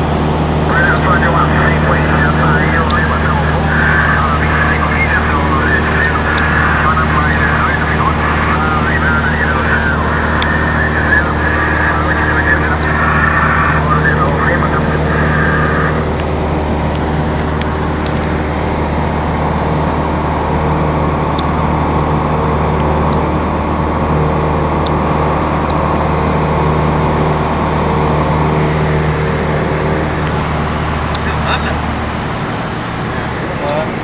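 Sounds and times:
propeller aircraft engine droning: 0.0 - 34.0.

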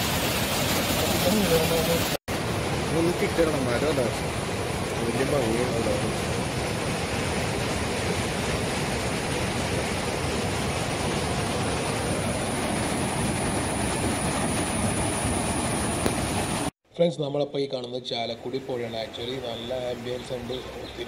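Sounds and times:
rushing water: 0.0 - 16.7.

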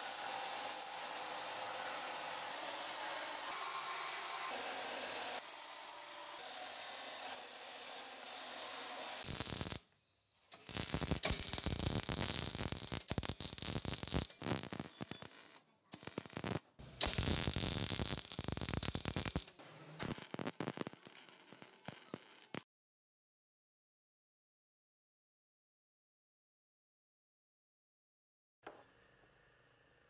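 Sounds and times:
welder crackling: 9.2 - 9.8, 10.5 - 22.6.

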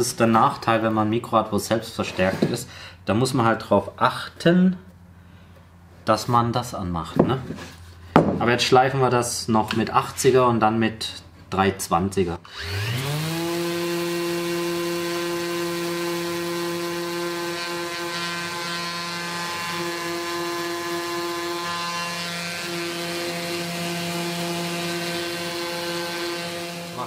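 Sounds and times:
orbital sander sanding wood: 12.5 - 27.0.

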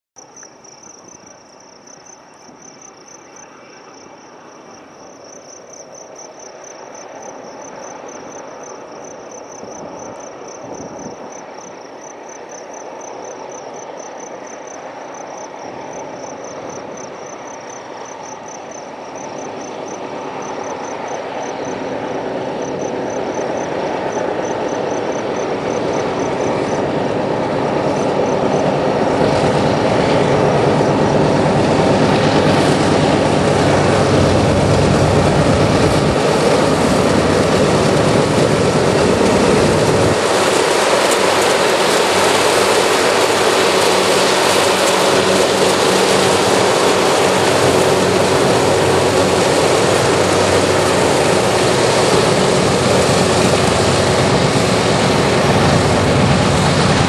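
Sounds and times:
insect chirping: 0.2 - 21.9, 22.6 - 26.9
freight train approaching: 0.2 - 57.0.

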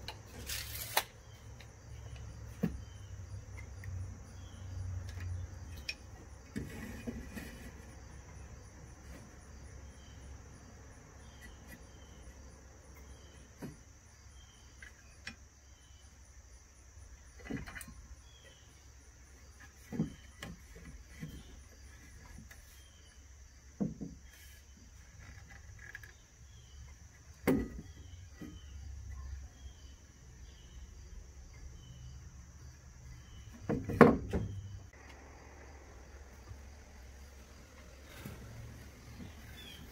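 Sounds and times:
insects droning: 0.0 - 39.9
knocks of tools and boards: 19.7 - 21.6, 27.4 - 28.6, 33.5 - 34.7.

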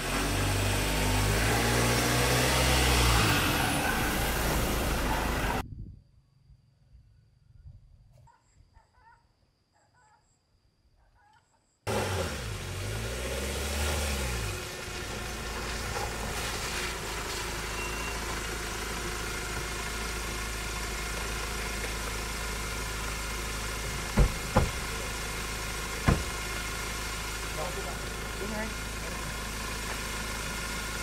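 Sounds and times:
truck engine idling: 0.0 - 5.6, 14.4 - 31.0
truck door knocks: 24.2 - 24.8, 26.0 - 26.4.

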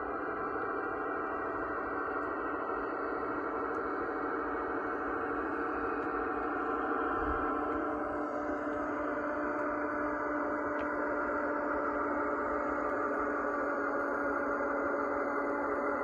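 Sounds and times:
model locomotive humming drone: 0.0 - 16.0.

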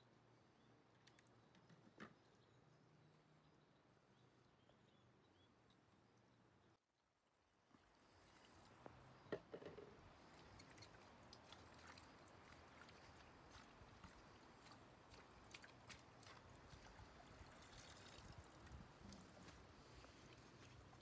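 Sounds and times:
small knock: 9.3 - 9.9
water splashing in a basin: 10.0 - 21.0
water pouring: 16.7 - 21.0.

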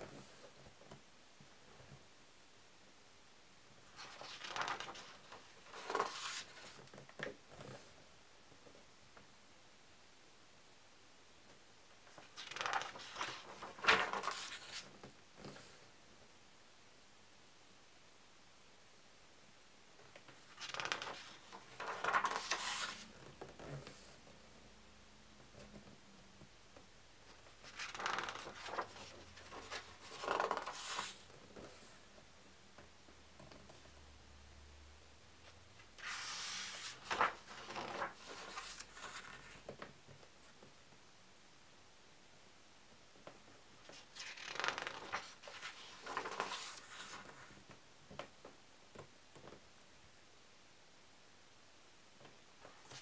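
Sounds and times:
book page turning: 4.0 - 6.8, 12.1 - 14.9, 20.3 - 23.1, 27.6 - 31.3, 36.0 - 39.8, 43.9 - 47.6.

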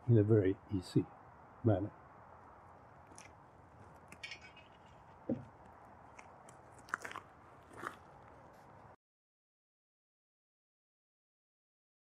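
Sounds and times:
footsteps on gravel: 3.1 - 8.9
dull thump: 5.3 - 5.5.

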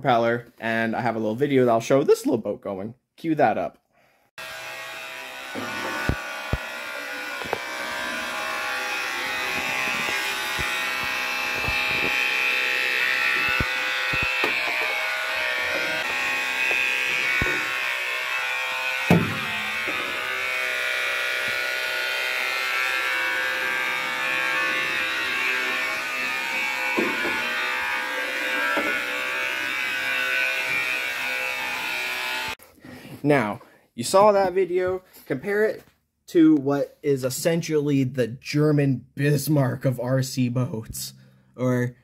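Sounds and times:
toy boat motor buzzing: 4.4 - 32.6
knocks and clicks: 13.4 - 15.0.

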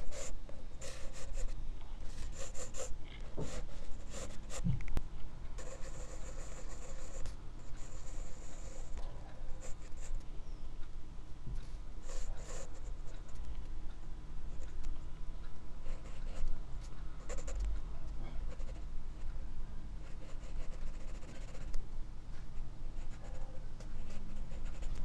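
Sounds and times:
pencil sketching on paper: 2.2 - 4.6, 5.6 - 9.0, 12.1 - 12.9.

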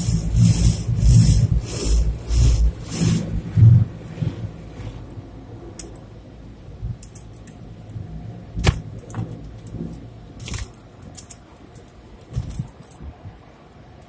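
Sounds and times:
cloth strips slapping car: 0.0 - 5.0
car wash machinery hum: 0.0 - 14.0.

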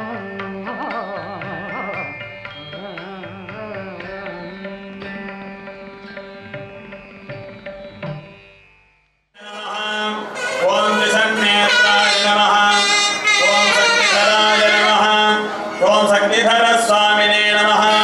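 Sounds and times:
melodic lines over drone: 0.5 - 8.6.

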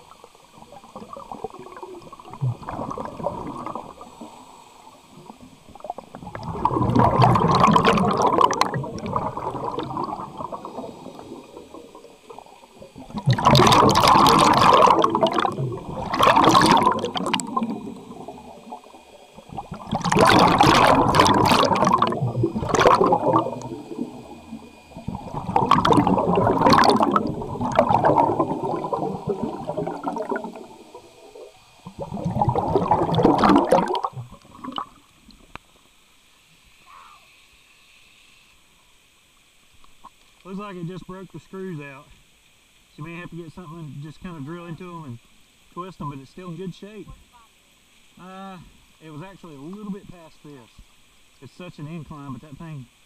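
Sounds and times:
gurgling rushes of bubbles: 0.0 - 35.5.

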